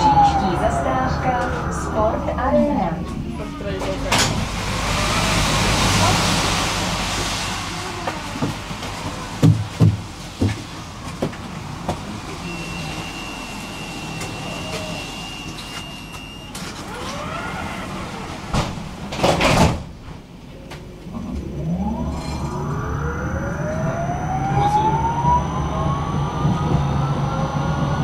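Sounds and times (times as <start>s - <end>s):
high door warning tone: 0.0s - 4.5s, 12.3s - 18.6s
sliding tram doors closing: 0.0s - 22.8s.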